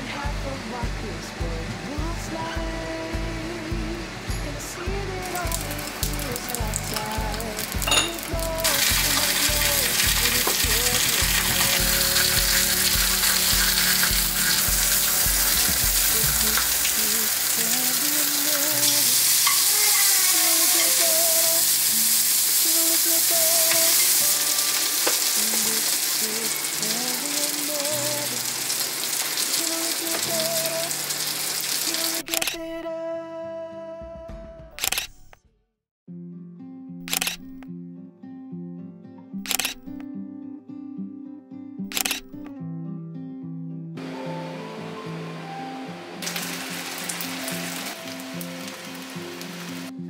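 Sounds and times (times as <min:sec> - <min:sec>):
meat and vegetables sizzling in skillet: 0:05.2 - 0:32.3, 0:46.2 - 0:50.0.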